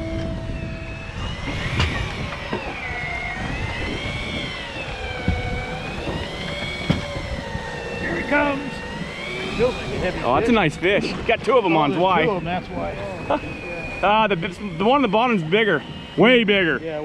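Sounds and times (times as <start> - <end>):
fishing reel motor whining: 0.0 - 17.0
sharp knocks: 5.2 - 7.2.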